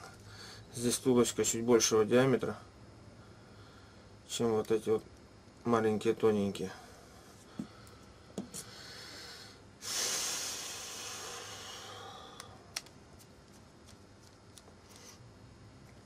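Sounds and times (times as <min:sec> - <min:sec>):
loud breathy hiss: 0:06.8 - 0:12.8.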